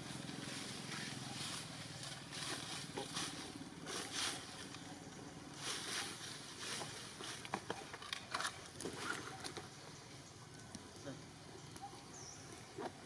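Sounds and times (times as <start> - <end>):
rustling hiss: 0.0 - 13.0.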